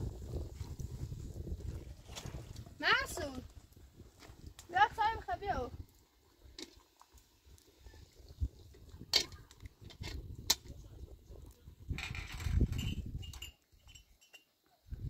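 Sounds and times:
metal pots clinking: 12.0s - 14.6s.

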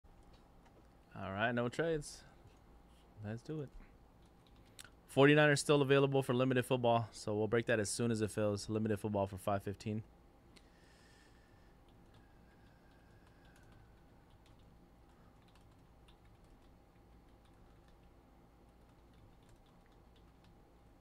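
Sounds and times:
faint electrical hum: 0.1s - 21.0s
keyboard typing clicks: 11.8s - 20.6s.

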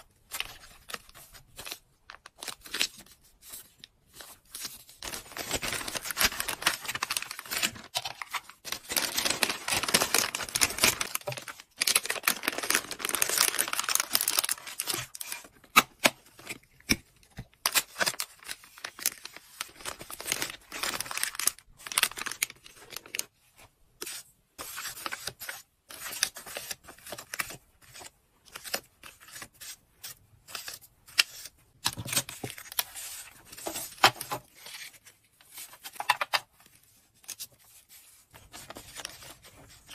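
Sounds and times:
plastic bag crinkling: 5.0s - 15.1s, 18.8s - 23.2s.

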